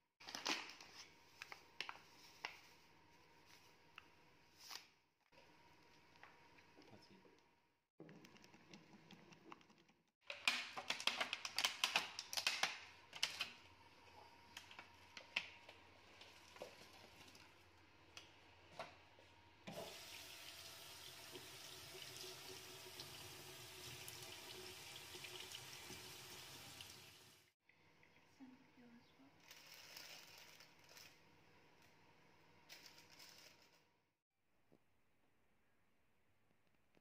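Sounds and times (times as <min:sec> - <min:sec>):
tap water running: 0:19.7 - 0:27.5.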